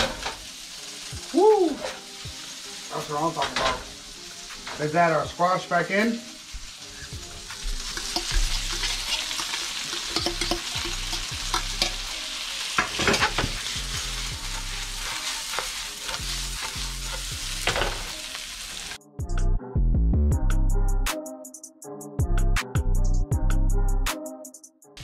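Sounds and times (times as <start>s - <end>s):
food sizzling in frying pan: 0.0s - 19.0s
music with a beat: 1.0s - 2.6s, 6.0s - 12.1s, 19.0s - 25.0s
utensil clicking against pan: 7.9s - 12.1s.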